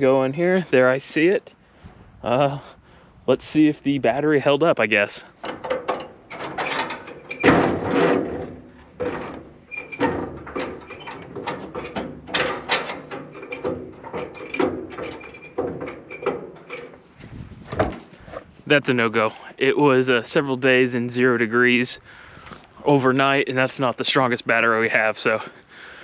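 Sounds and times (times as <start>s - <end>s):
tractor starter clicks and rattles: 5.3s - 18.1s.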